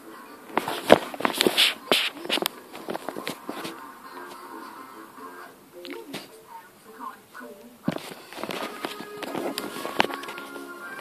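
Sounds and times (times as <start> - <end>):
cartoon soundtrack music: 8.6 - 11.0.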